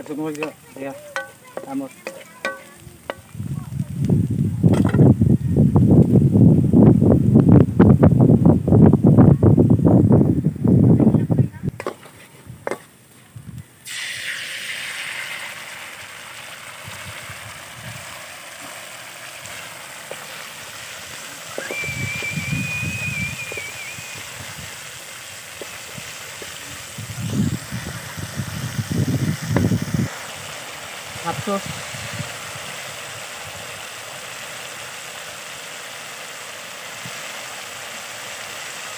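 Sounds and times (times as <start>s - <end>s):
wooden spatula stirring: 0.0s - 3.4s, 19.5s - 21.8s
sauce sizzling in wok: 0.0s - 5.1s, 11.8s - 38.9s.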